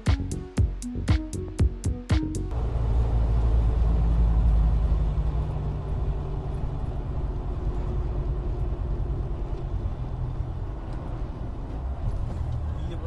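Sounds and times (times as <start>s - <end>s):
car road and engine rumble: 2.4s - 13.0s.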